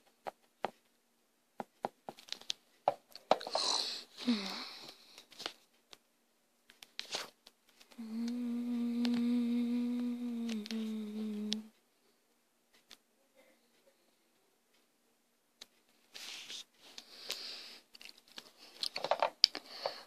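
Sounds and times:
person humming a held note: 8.0s - 11.7s
rustling: 15.6s - 20.0s.

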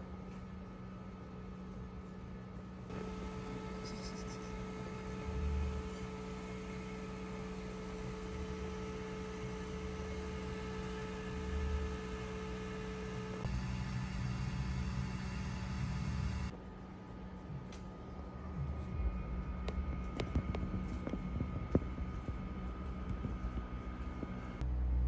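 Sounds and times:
steady electrical hum: 0.0s - 25.0s
low rumbling bumps: 18.4s - 25.0s.

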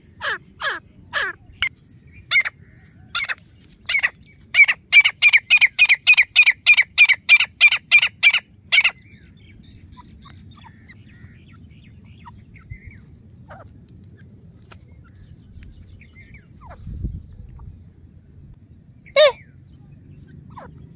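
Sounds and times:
bird harsh repeated calls: 0.0s - 13.7s, 16.1s - 17.8s, 19.0s - 19.6s, 20.2s - 20.9s.

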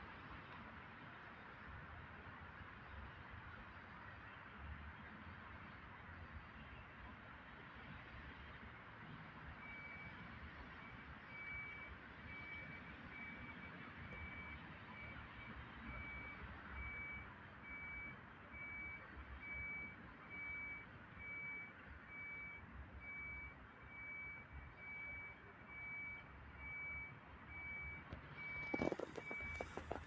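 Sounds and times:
reversing alarm beeping: 10.8s - 30.0s
close clicking and rustling: 28.6s - 30.0s.

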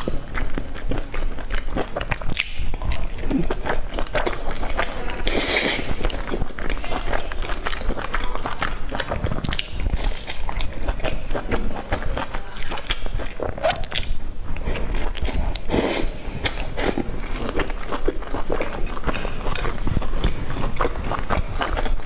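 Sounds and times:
person chewing sticky food: 0.0s - 22.0s
wet mouth clicks and smacks: 2.0s - 2.9s.

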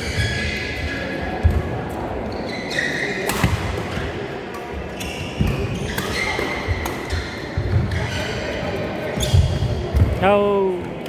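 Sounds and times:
shoes squeaking on court: 0.0s - 10.1s
racket hitting shuttlecock: 3.2s - 4.6s, 5.3s - 8.2s.

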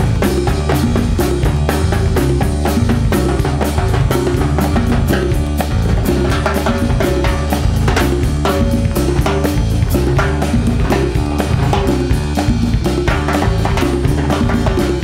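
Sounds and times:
latin rock band instrumental: 0.0s - 15.0s
timbales struck with sticks: 0.0s - 15.0s.

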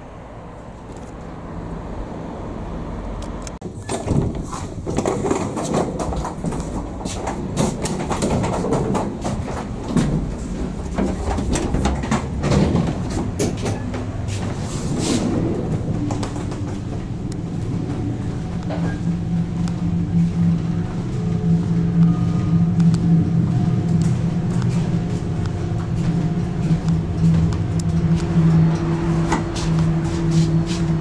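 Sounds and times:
train low rumble: 0.0s - 31.0s
train wheels clacking over rail joints: 3.6s - 19.3s
steady hum: 6.2s - 31.0s.

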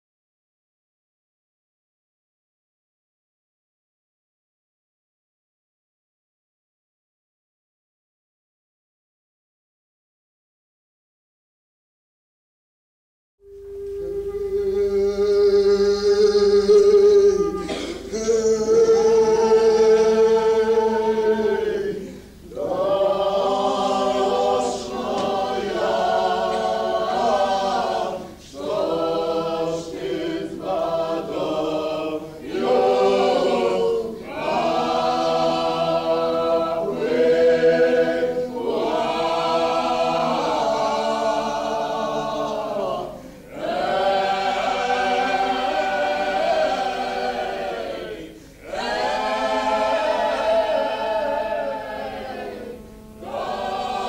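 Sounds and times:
group singing without instruments: 13.4s - 54.0s.

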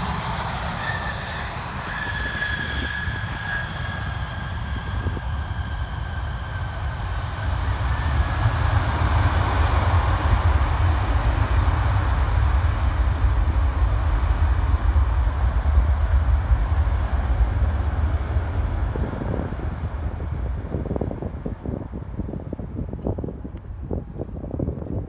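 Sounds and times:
jet engine whine falling in pitch: 0.0s - 24.4s
jet engine roar: 0.0s - 24.8s
wind rumble on microphone: 0.0s - 25.0s.

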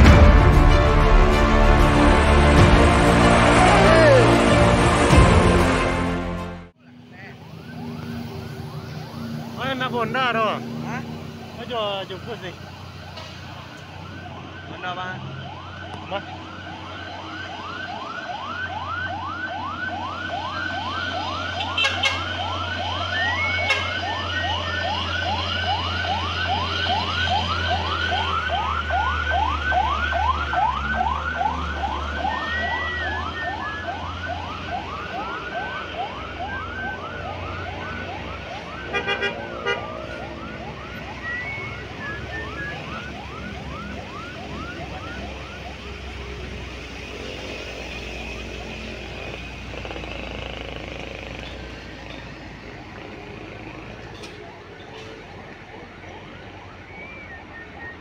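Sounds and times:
truck engines passing: 0.0s - 58.0s
siren yelping: 3.2s - 4.8s, 6.9s - 58.0s.

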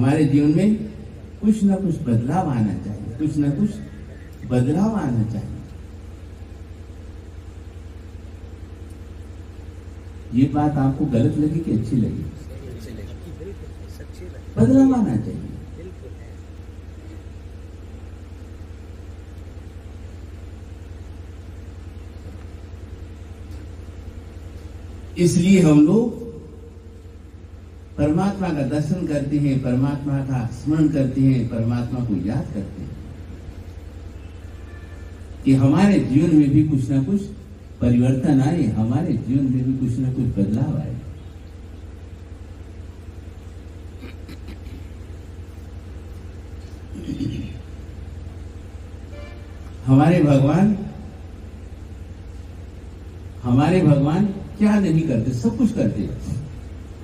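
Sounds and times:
faint background noise: 0.0s - 57.0s
steady low hum: 0.0s - 57.0s
faint clicks: 8.8s - 9.0s.

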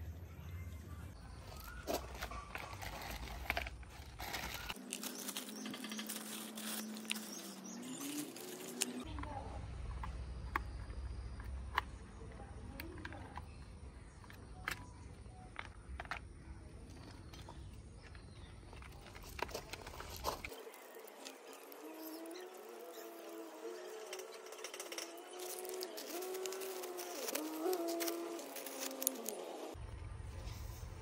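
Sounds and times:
plastic packaging rustling: 1.4s - 9.1s, 18.8s - 29.8s.

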